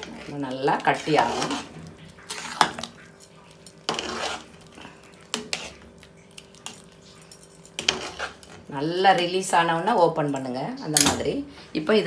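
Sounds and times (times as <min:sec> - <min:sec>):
metal ladle scraping pot: 0:00.0 - 0:05.9, 0:06.6 - 0:08.8.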